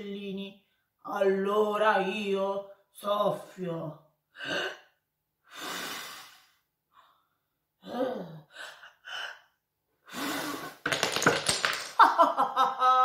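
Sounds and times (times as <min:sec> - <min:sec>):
wooden sticks clattering: 0:10.9 - 0:12.1.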